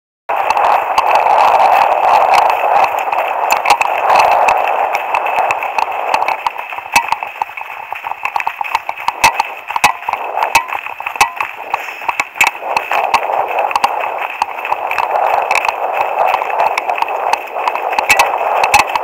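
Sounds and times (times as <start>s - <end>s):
running footsteps on gravel: 0.3s - 19.0s
steady rushing hiss: 0.3s - 19.0s
trekking poles clicking on gravel: 0.4s - 19.0s.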